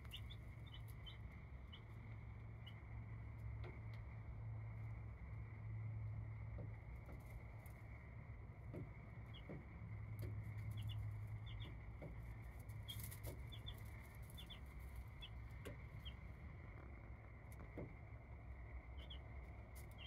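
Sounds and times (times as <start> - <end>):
baby chicks peeping: 0.0 - 4.0, 8.6 - 18.0, 18.8 - 20.0
steady low hum: 0.0 - 20.0.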